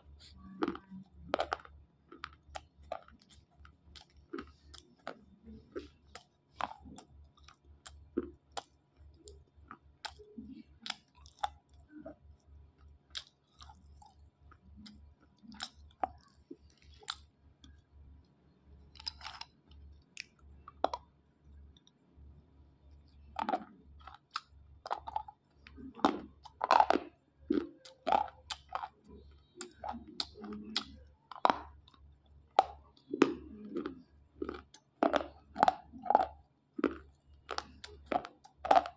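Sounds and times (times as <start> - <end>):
slate crunching between teeth: 13.1 - 17.3, 18.9 - 21.0, 23.4 - 38.9.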